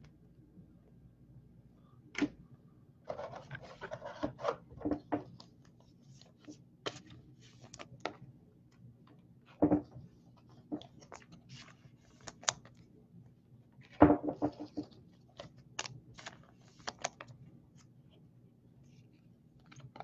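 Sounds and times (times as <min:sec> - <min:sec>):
cards rustling and scraping: 0:03.1 - 0:08.2, 0:10.0 - 0:12.8, 0:13.9 - 0:17.9.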